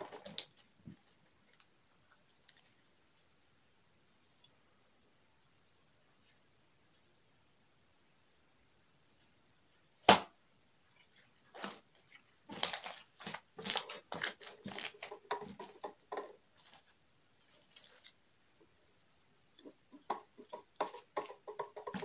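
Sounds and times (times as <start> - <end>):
slime squelching and crackling: 0.0 - 3.2, 10.9 - 18.2.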